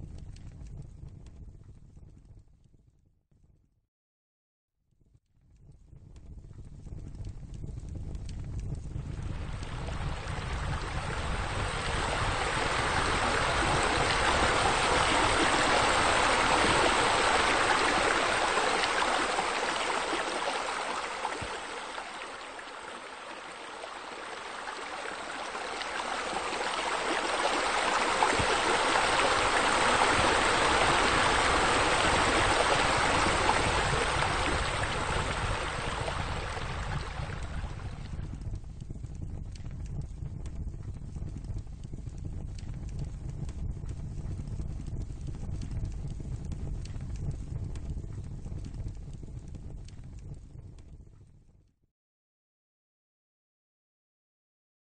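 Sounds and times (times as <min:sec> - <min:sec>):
water spilling from water features: 0:09.1 - 0:38.4.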